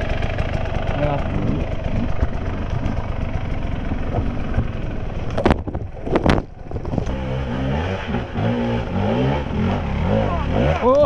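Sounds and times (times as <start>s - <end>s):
dirt bike engine revving: 6.0s - 11.0s.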